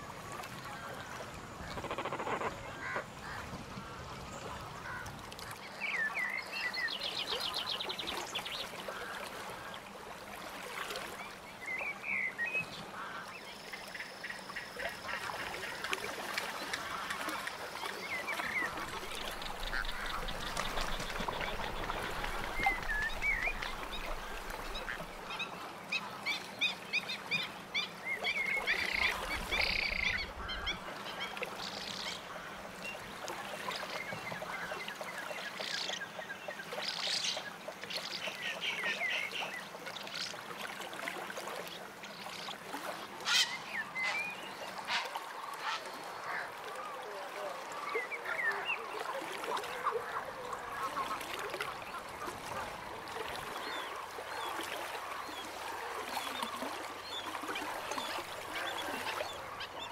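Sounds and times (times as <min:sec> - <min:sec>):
ducks and geese calling: 0:18.6 - 0:25.2, 0:43.2 - 0:46.6.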